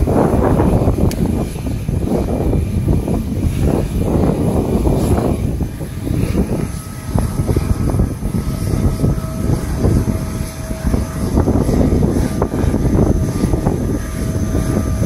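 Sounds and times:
faint thin engine whine: 0.0s - 15.0s
jet engines rumbling: 0.0s - 15.0s.

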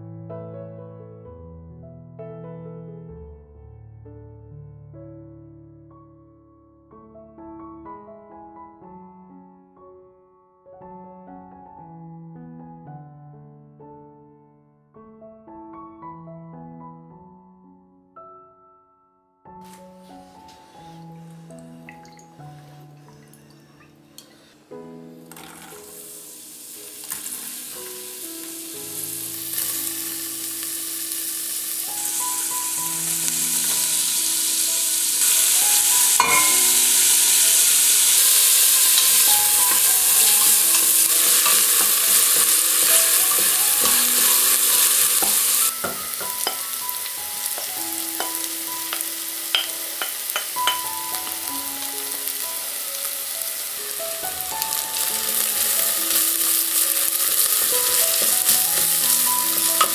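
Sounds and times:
vegetables sizzling in oil: 19.7s - 24.5s, 25.2s - 59.9s.

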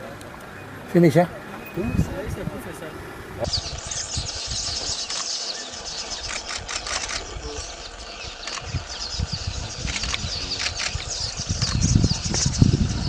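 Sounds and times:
birds chirping: 0.0s - 13.0s
low rumble: 1.7s - 13.0s
sharp clicks: 5.0s - 5.5s, 6.2s - 7.3s, 8.4s - 8.7s, 9.8s - 11.8s.

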